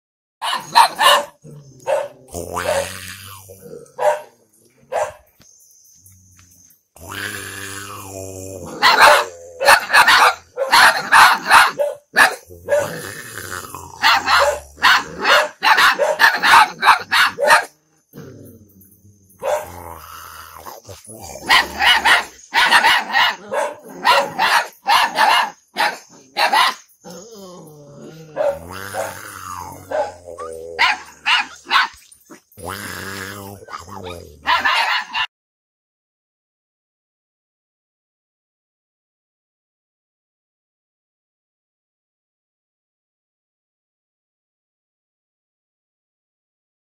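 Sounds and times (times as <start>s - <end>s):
puppies barking: 0.4s - 5.3s, 8.7s - 13.0s, 14.0s - 17.8s, 19.4s - 19.8s, 21.4s - 27.2s, 28.1s - 35.3s
puppies growling: 0.5s - 5.2s, 6.0s - 35.3s.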